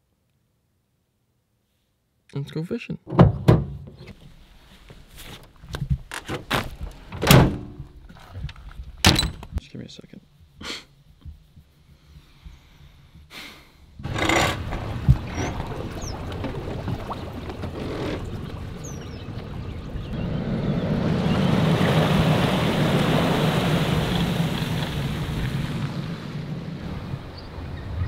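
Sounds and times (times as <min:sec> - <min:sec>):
engine running: 0:14.0 - 0:28.0
water sounds: 0:14.0 - 0:28.0.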